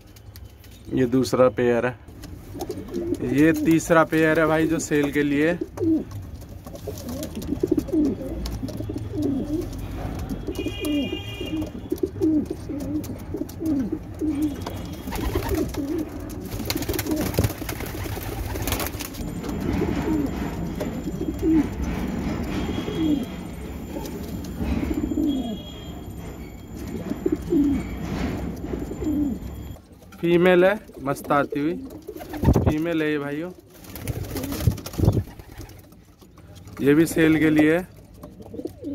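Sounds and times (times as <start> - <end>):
pigeons cooing: 2.5 - 4.0, 4.7 - 25.9, 26.8 - 29.7, 30.8 - 32.7, 38.0 - 38.9.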